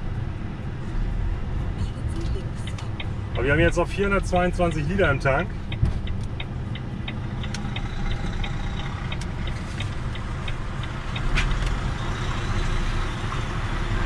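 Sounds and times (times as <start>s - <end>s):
diesel engine idling: 2.5s - 13.8s
rapid regular ticking: 2.6s - 11.3s.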